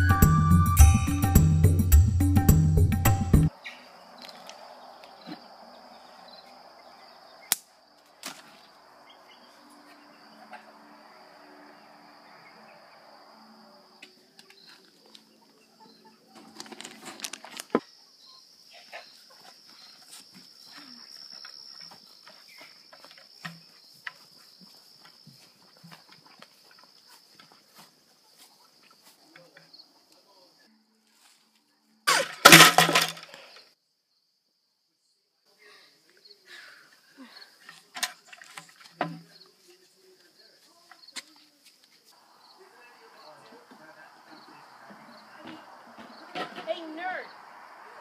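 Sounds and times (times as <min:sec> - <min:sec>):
high insect drone: 0:03.8 - 0:14.8.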